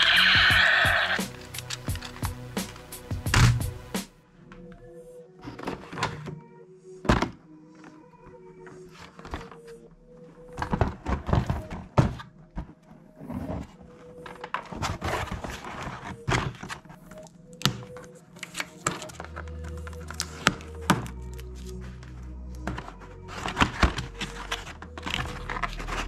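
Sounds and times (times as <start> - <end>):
cardboard scraping: 12.9 - 17.0, 17.7 - 26.0.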